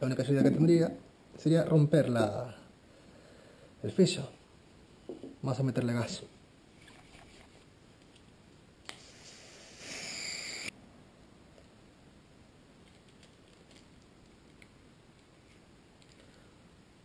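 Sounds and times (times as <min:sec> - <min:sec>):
gas hissing: 0:08.9 - 0:10.7
faint handling sounds: 0:12.7 - 0:16.7.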